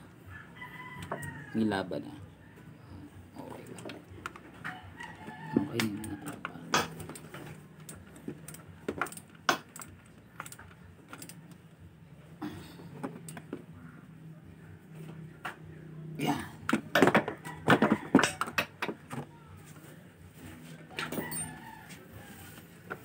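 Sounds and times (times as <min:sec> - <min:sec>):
metal tools clinking: 0:21.0 - 0:21.6.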